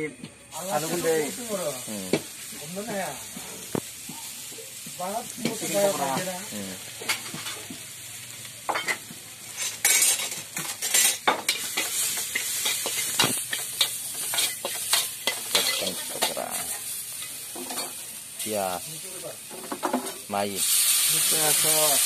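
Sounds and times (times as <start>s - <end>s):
chicken sizzling in hot oil: 0.4s - 22.0s
metal spatula scraping wok: 8.7s - 18.2s.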